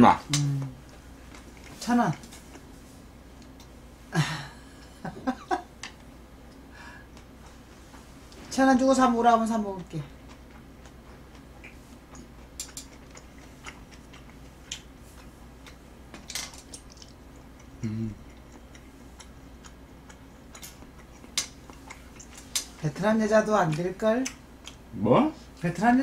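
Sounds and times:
chewing: 0.9 - 2.7, 9.8 - 15.8, 16.6 - 22.8.

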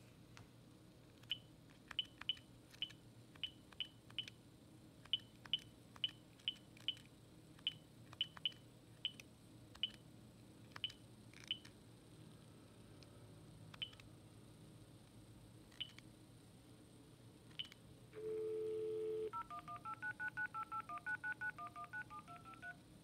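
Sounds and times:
phone keypad beeps: 17.6 - 22.8.

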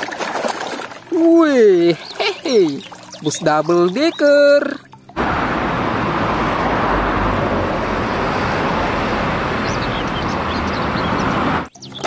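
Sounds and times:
street traffic noise: 4.9 - 12.0
bus driving past: 5.1 - 11.7.

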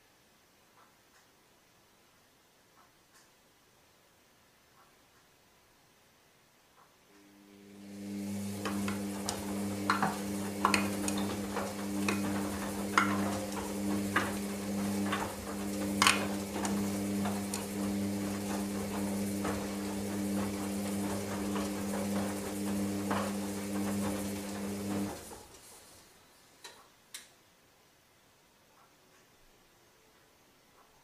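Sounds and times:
washing machine motor hum: 7.2 - 26.1.

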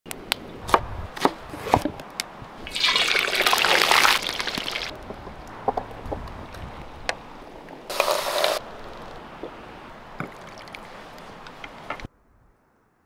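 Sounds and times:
wood fire crackling: 2.0 - 11.9
hot oil sizzling: 2.7 - 4.9, 7.9 - 8.6.

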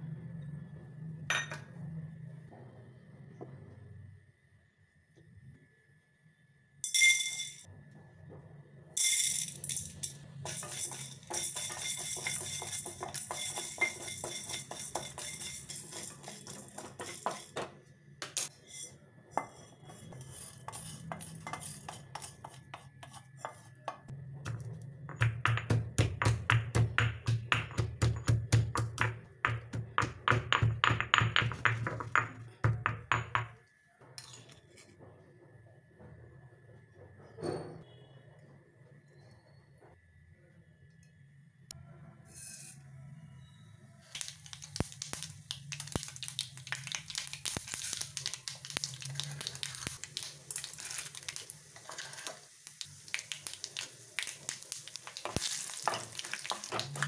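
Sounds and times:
spices clattering in a metal pan: 9.0 - 33.6, 44.0 - 57.0
pestle pounding in stone mortar: 10.5 - 17.8, 20.7 - 33.6.

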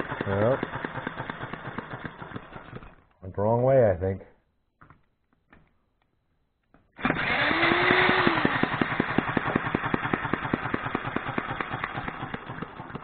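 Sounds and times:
model engine knocking: 0.0 - 2.9, 7.8 - 13.0
electric drill whining: 7.0 - 13.0.

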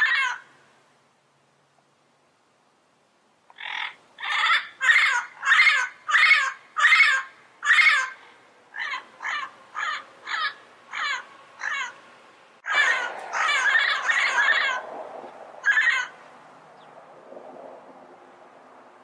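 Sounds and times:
parrot calling: 0.0 - 0.5, 3.5 - 15.0, 15.6 - 16.2.

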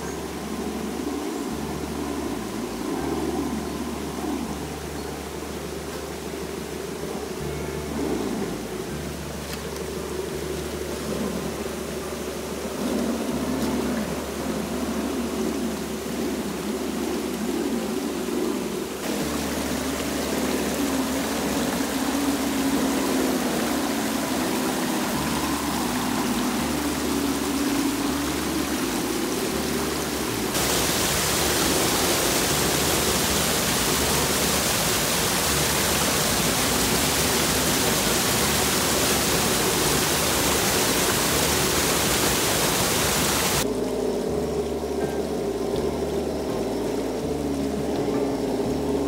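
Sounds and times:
small waterfall: 0.0 - 49.0
river water rushing over rocks: 8.6 - 43.7.

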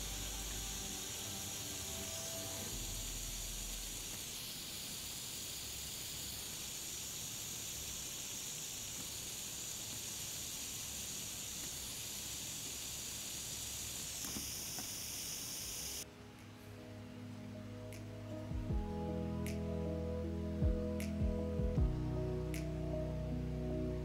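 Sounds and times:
fizzing hiss of bubbling gas: 0.0 - 16.0.

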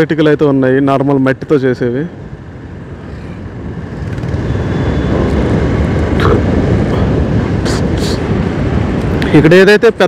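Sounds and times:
wind noise: 2.1 - 10.0.

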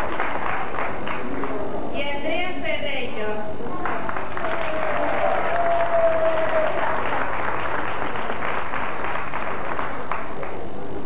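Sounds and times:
audience applause: 0.0 - 1.7, 3.7 - 10.7.

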